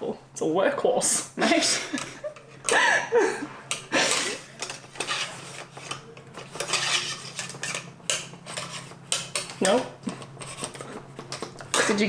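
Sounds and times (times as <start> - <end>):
cleaning rod scraping in rifle barrel: 4.1 - 9.0.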